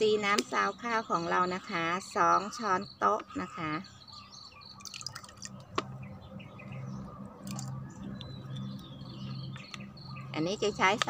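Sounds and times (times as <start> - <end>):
liquid dripping into water: 4.8 - 5.8, 7.4 - 8.7.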